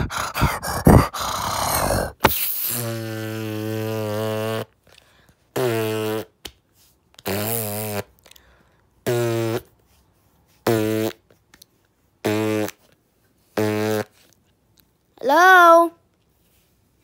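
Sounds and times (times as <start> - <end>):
fart-like low buzzing: 0.2 - 4.7, 5.6 - 6.4, 7.2 - 8.1, 9.0 - 9.7, 10.6 - 11.2, 12.2 - 12.8, 13.6 - 14.1.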